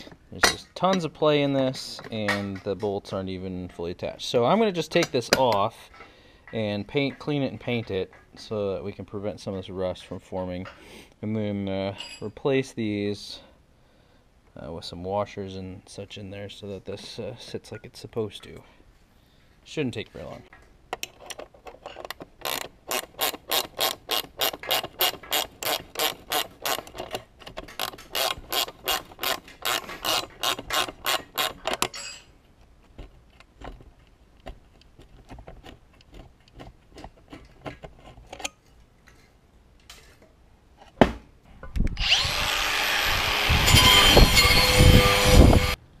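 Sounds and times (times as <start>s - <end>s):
metal parts clinking: 21.0s - 32.4s
ratchet wrench clicking: 21.3s - 27.2s, 27.8s - 32.0s
thump: 41.0s - 41.3s.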